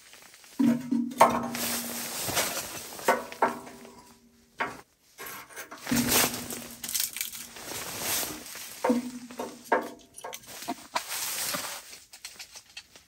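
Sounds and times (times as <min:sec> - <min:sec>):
rustling crinkling handling: 0:00.0 - 0:13.0
wood knocking against metal stove: 0:00.6 - 0:01.8, 0:03.1 - 0:04.0, 0:04.6 - 0:04.8, 0:08.8 - 0:10.4.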